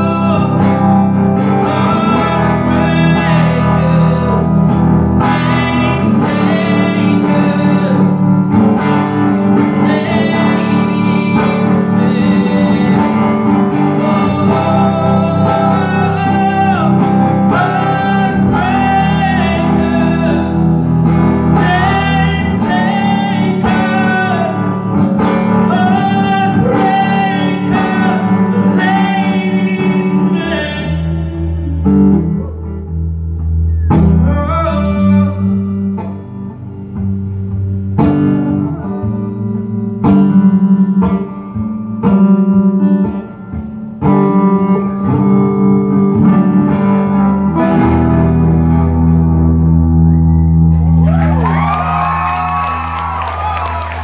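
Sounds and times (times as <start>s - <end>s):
man singing: 0.0s - 8.5s, 9.6s - 32.3s, 34.1s - 36.3s, 38.0s - 40.0s
strummed electric guitar: 0.0s - 54.0s.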